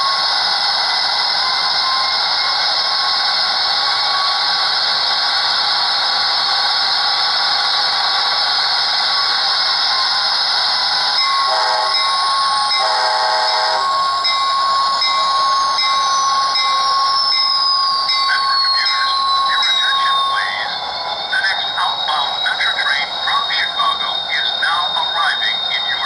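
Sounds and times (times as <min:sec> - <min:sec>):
locomotive engine hiss: 0:00.0 - 0:26.0
locomotive horn blasts: 0:11.5 - 0:12.0, 0:12.8 - 0:13.9
bell ringing: 0:13.5 - 0:20.3.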